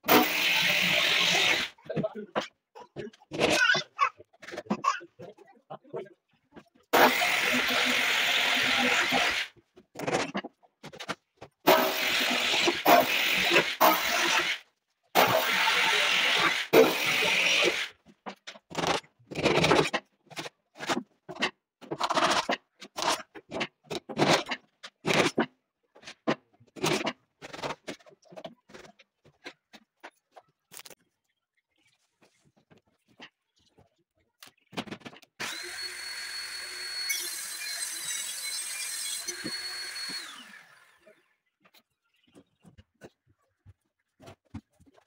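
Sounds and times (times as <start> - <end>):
table saw whine: 0.0 - 1.7, 7.0 - 9.5, 15.2 - 17.9, 35.4 - 41.3.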